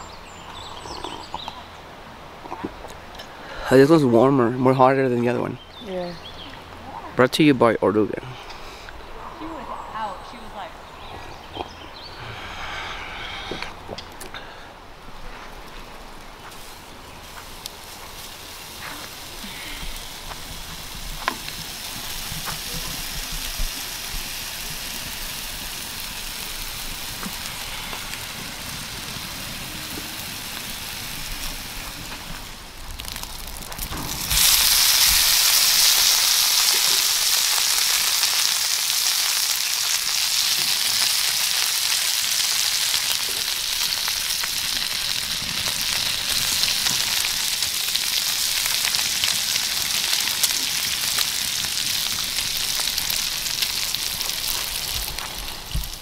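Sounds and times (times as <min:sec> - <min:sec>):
food sizzling in frying pan: 0:16.4 - 0:56.0.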